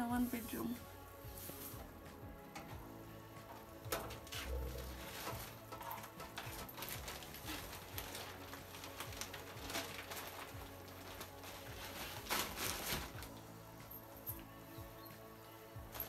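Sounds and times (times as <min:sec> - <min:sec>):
soft background music: 0:00.0 - 0:16.0
light clicks and rustles: 0:03.4 - 0:14.5.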